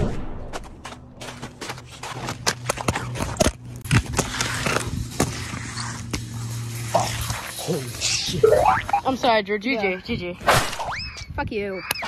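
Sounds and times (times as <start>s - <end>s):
quick footsteps on hard ground: 0.1s - 6.7s.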